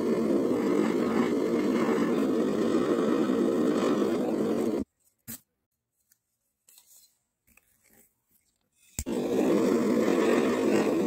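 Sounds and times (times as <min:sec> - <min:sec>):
gas torch flame burning: 0:00.0 - 0:04.9, 0:09.0 - 0:11.0.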